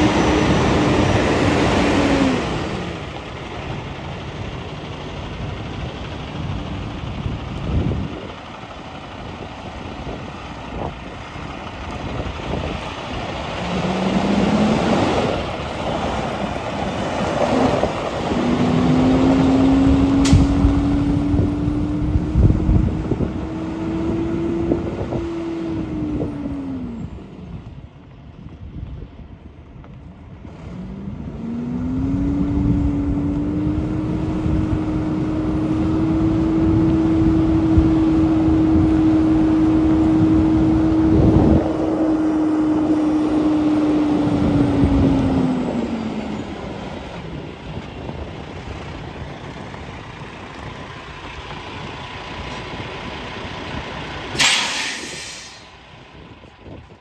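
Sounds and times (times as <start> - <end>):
truck diesel engine: 0.0 - 57.0
air brakes hissing: 54.3 - 55.8.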